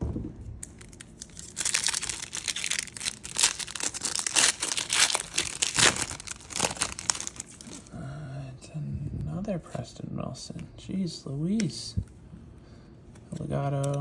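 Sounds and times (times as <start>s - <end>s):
foil wrapper tearing and crinkling: 0.6s - 7.9s.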